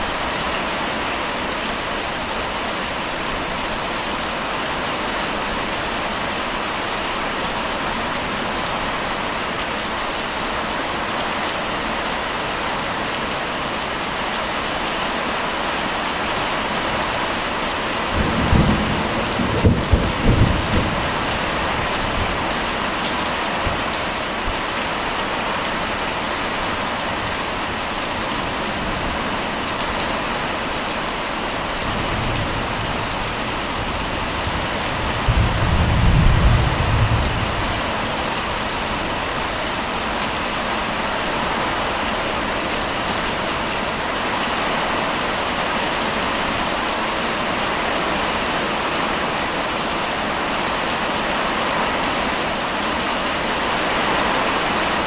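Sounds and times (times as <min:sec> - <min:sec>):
heavy rain pouring: 0:00.0 - 0:55.0
thunder rumbling: 0:18.1 - 0:22.8, 0:31.7 - 0:39.6.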